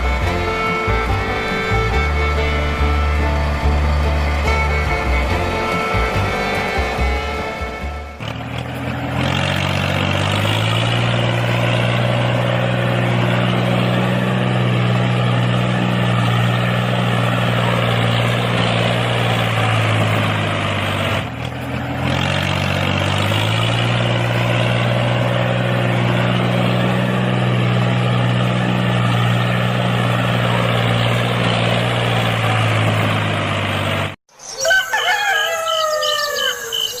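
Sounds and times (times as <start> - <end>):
tractor engine running: 0.0 - 34.2
rooster crowing and clucking: 34.4 - 37.0.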